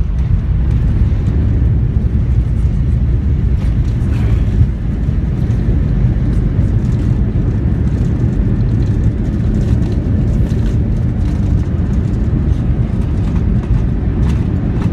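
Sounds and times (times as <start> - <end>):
airliner cabin rumble: 0.0 - 14.9.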